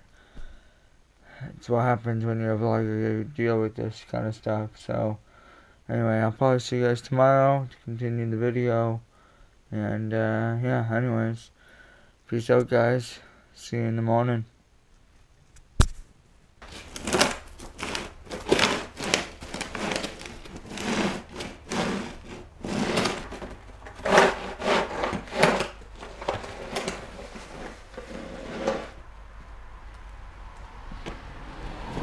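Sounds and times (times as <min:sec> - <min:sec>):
snow shovel scraping: 0:16.6 - 0:29.0.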